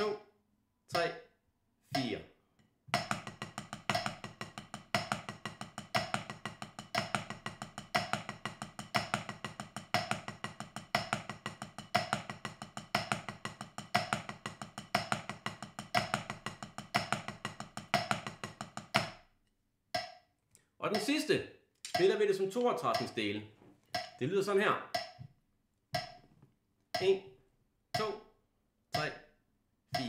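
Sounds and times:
drumsticks on practice pad: 0:01.9 - 0:02.2, 0:02.9 - 0:19.3, 0:20.0 - 0:20.2, 0:20.9 - 0:21.3, 0:21.9 - 0:23.3, 0:24.0 - 0:24.3, 0:24.9 - 0:25.3, 0:26.0 - 0:26.2, 0:27.0 - 0:27.2, 0:28.0 - 0:28.3, 0:29.0 - 0:29.3.

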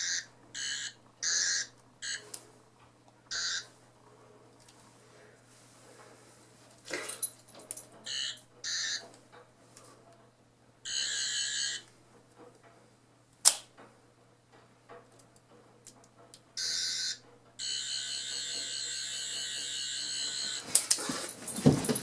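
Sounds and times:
toy electronic warbling buzz: 0:00.0 - 0:02.2, 0:03.3 - 0:03.6, 0:08.1 - 0:09.0, 0:10.9 - 0:11.8, 0:16.6 - 0:20.6
sharp click of toy springing open: 0:13.4 - 0:13.7.

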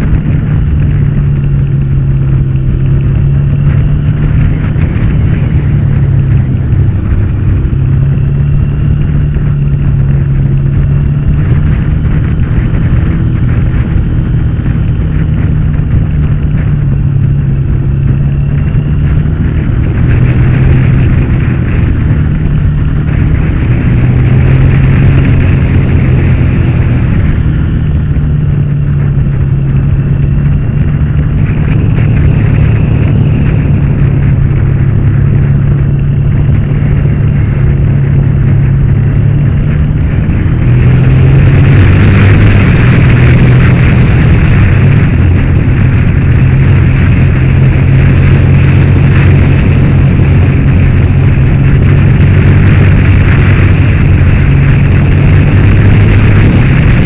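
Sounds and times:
motorcycle engine running: 0:00.0 - 0:57.0
wind rush over microphone: 0:00.0 - 0:57.0.

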